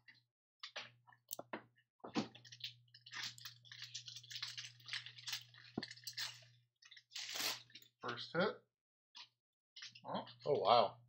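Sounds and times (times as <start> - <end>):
foil wrapper crinkling and tearing: 2.6 - 7.9.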